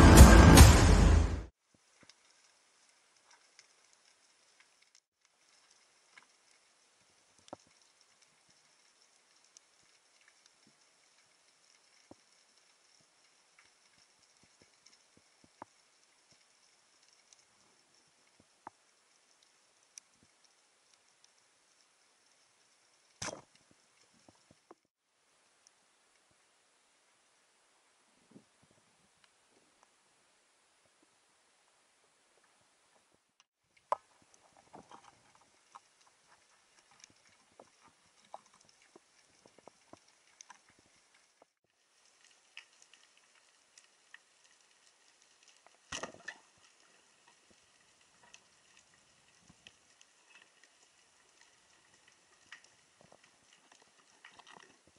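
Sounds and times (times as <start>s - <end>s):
underwater clicks and knocks: 45.7s - 46.5s.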